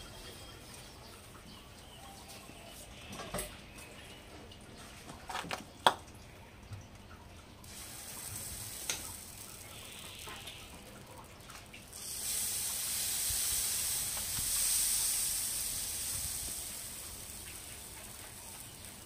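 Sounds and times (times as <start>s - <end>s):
batter sizzling on griddle: 7.6s - 19.0s
utensils clicking on metal griddle: 7.7s - 10.6s.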